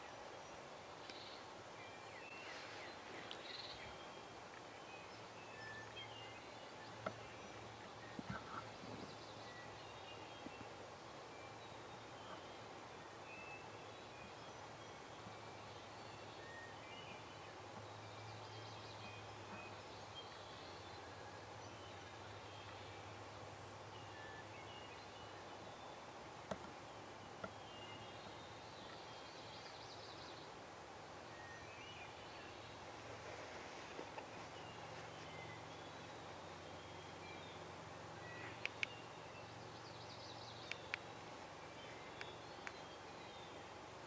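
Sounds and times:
distant songbirds chirping: 0.0 - 44.0
steady low hiss: 0.0 - 44.0
light clicks: 38.6 - 39.0, 42.2 - 42.8.

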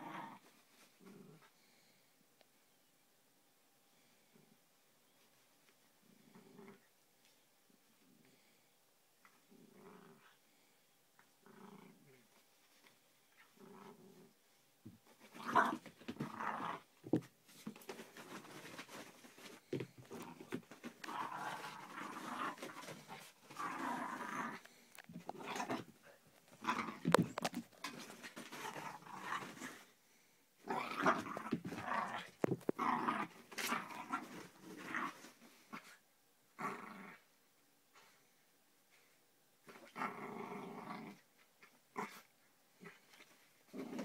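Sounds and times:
puppy play-growling: 0.0 - 1.5, 6.0 - 6.9, 9.2 - 10.4, 11.4 - 14.4, 15.0 - 29.9, 30.6 - 36.0, 36.6 - 37.3, 39.6 - 41.3, 41.9 - 44.0.

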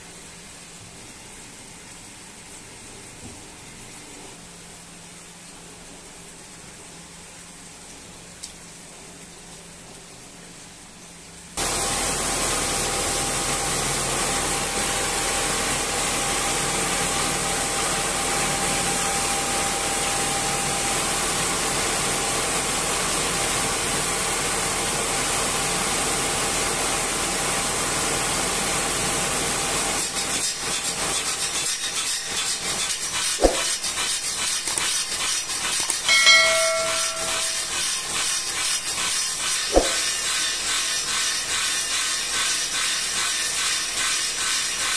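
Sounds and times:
circular saw cutting stone: 29.5 - 44.9
sharp knocks: 33.4 - 33.7, 39.7 - 40.0
brief ringing tone: 36.1 - 37.9.

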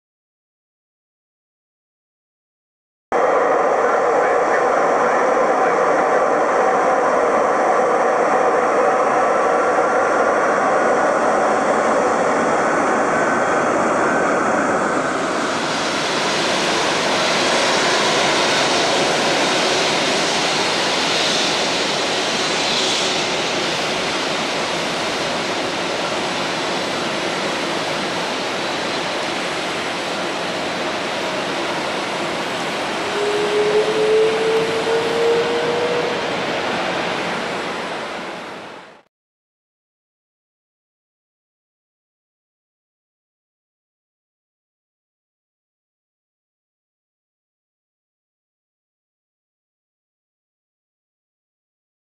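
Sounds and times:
jet engines whining: 3.2 - 39.0.

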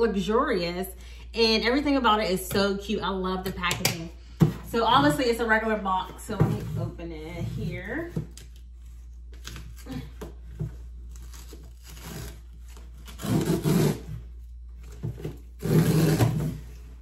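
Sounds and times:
cardboard ripping: 8.8 - 16.8.

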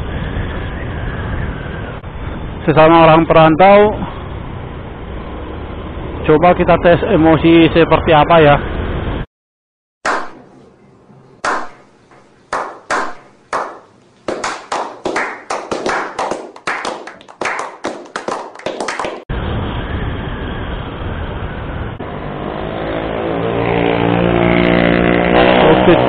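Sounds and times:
road noise: 0.0 - 9.2, 10.4 - 26.0
group clapping: 10.1 - 10.4, 11.4 - 11.8, 12.5 - 19.3
scooter engine: 22.0 - 26.0.

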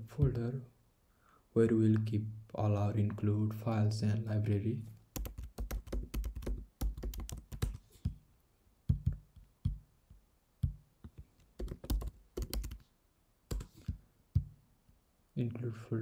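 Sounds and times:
typing on computer keyboard: 5.2 - 8.2, 10.6 - 12.8, 13.5 - 14.0.

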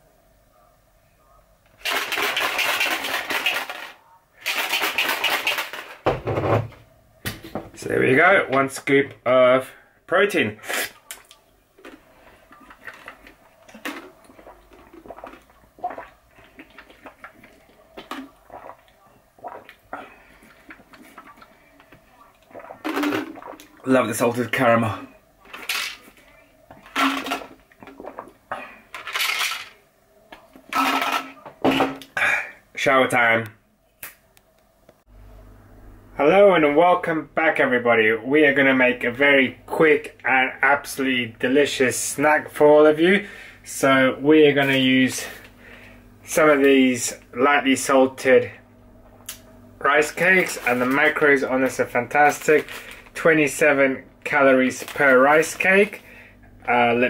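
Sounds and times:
shaker bottle liquid sloshing: 1.8 - 6.0, 11.8 - 24.6, 50.0 - 53.6, 54.2 - 56.1
person gulping and swallowing: 11.2 - 23.9, 26.9 - 28.9.

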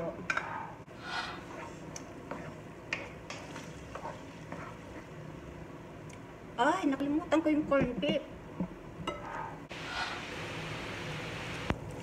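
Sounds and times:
faint sizzle from pot: 9.2 - 12.0.

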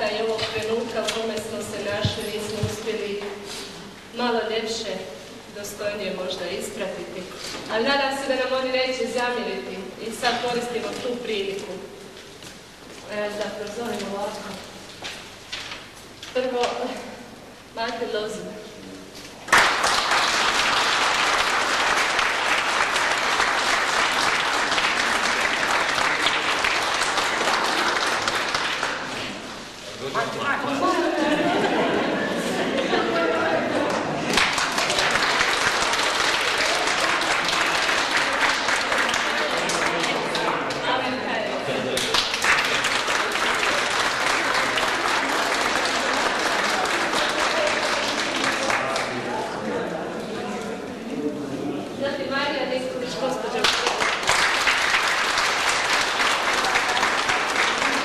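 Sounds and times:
audience applauding: 19.5 - 29.5, 32.9 - 40.9, 41.9 - 49.6, 53.6 - 58.0.

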